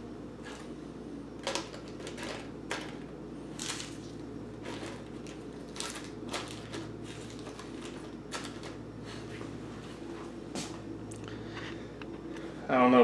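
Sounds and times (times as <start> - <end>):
fishing hook packets rustling: 3.6 - 8.8.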